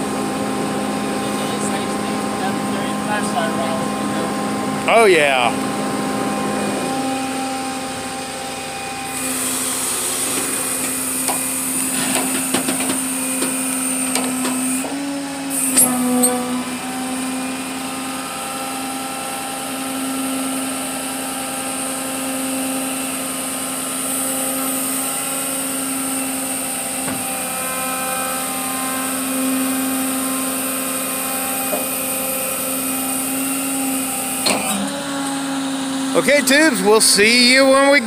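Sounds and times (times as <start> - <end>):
tow truck idling: 0.0 - 19.9.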